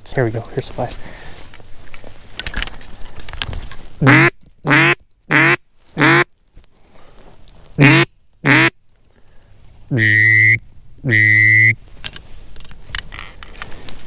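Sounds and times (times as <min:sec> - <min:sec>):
brush rustling and crackling: 0:00.0 - 0:04.6, 0:05.6 - 0:08.4, 0:11.8 - 0:14.0
duck call quacks: 0:04.0 - 0:06.3, 0:07.8 - 0:08.7, 0:09.9 - 0:11.8.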